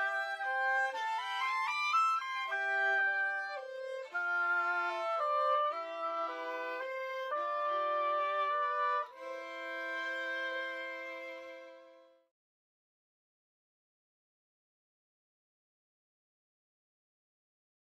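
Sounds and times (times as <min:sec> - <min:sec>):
violin slow melody: 0:00.0 - 0:12.3.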